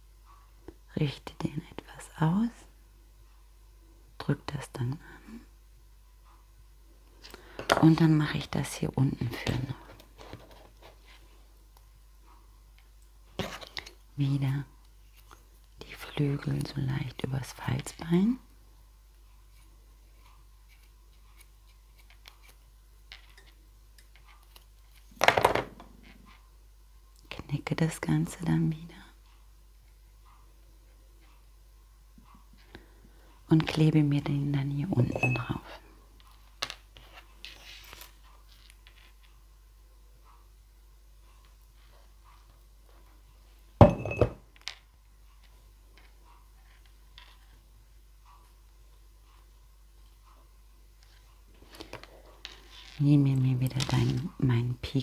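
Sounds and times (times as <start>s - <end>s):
bottle clunking into glass: 43.8s - 44.4s.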